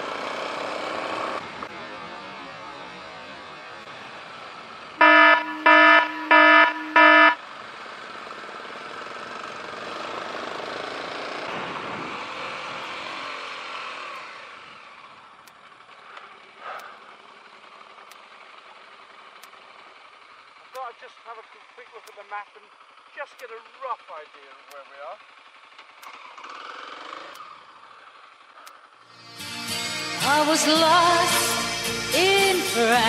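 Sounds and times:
motorcycle engine hum: 0.0s - 29.1s
motorcycle horn beeping: 5.0s - 7.4s
wind noise: 11.5s - 12.9s.

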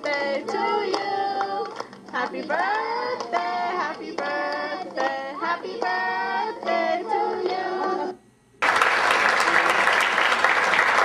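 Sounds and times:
children singing together: 0.0s - 1.8s, 2.4s - 8.2s
audience applause: 8.6s - 11.0s.

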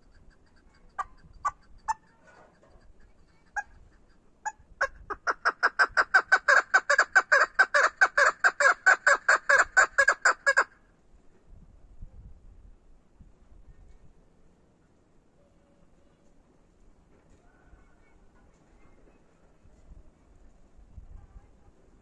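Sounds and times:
partridge clucking call: 0.0s - 10.7s.

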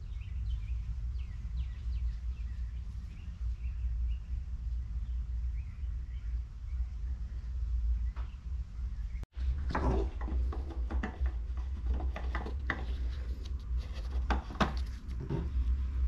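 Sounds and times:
steady low hum: 0.0s - 16.0s
plastic cap clicking and rubbing: 9.8s - 15.5s.

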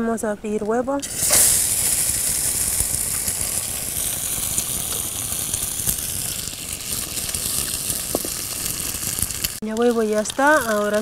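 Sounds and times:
egg sizzling in oil: 1.0s - 11.0s.

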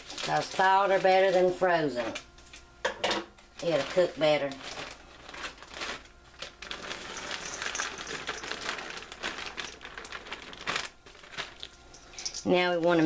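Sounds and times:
plastic bag crinkling: 0.0s - 1.7s, 3.5s - 13.0s
potato shreds crackling rustle: 3.6s - 13.0s.

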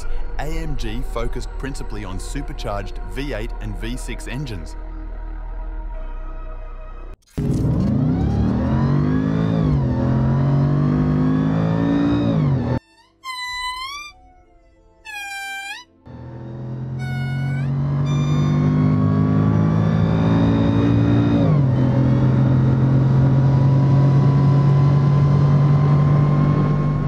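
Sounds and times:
car engine accelerating: 7.4s - 12.8s, 16.1s - 27.0s
lemur wailing call: 12.9s - 14.2s, 15.0s - 16.0s, 17.0s - 18.7s.

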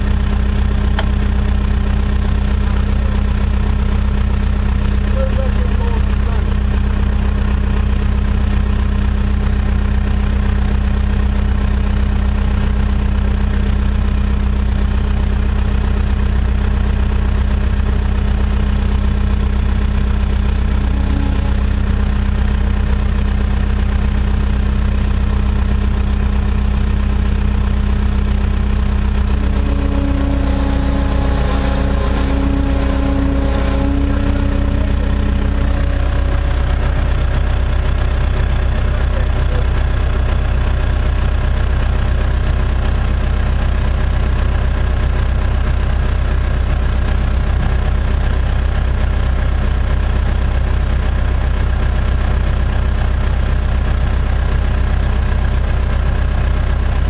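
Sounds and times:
machine engine idling: 0.0s - 57.0s
higher whine: 20.0s - 23.4s, 29.0s - 39.9s.

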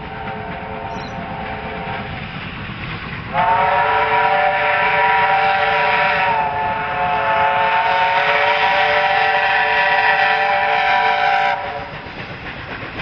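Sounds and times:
low rumble of approaching train: 0.0s - 13.0s
steam locomotive whistle chord: 3.3s - 11.9s.

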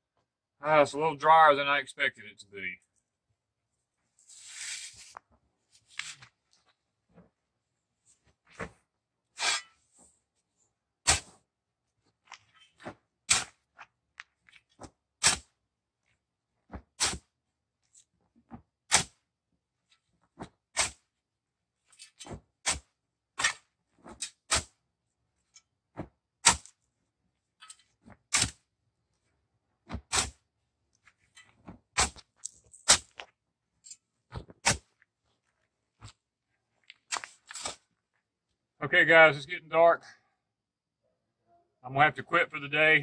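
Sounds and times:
shovel striking hard dirt: 11.1s - 11.4s, 13.3s - 13.6s, 15.2s - 15.5s, 17.0s - 17.3s, 18.9s - 19.2s, 20.8s - 21.0s, 22.3s - 23.6s, 24.2s - 24.8s, 26.4s - 26.8s, 28.3s - 28.6s, 30.0s - 30.4s, 32.0s - 33.2s, 34.6s - 34.9s.

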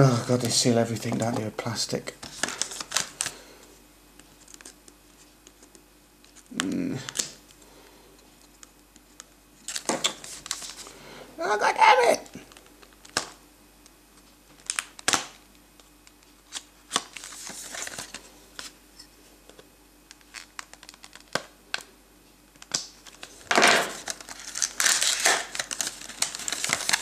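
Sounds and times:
packaging crinkling and tearing: 2.2s - 3.4s, 9.6s - 10.9s, 14.5s - 15.4s, 16.0s - 18.7s, 20.1s - 21.8s, 22.6s - 27.0s.

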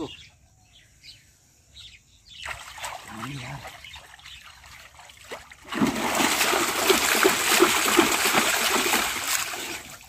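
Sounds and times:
water splashing in a pool: 2.4s - 10.0s.

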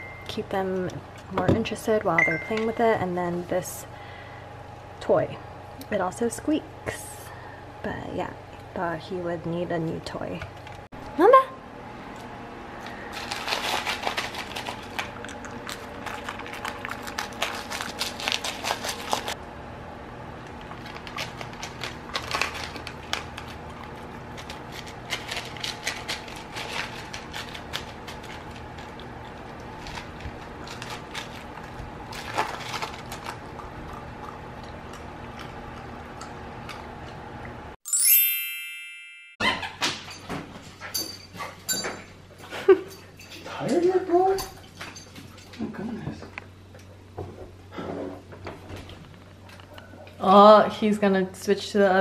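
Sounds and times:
dog crunching and licking ice: 13.1s - 19.4s, 20.6s - 36.8s.

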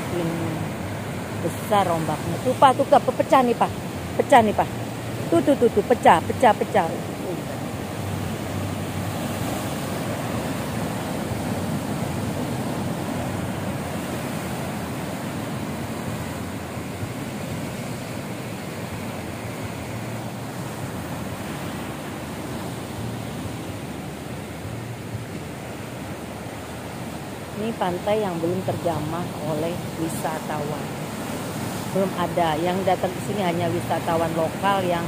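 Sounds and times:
waves breaking on rocky shore: 0.0s - 35.0s.

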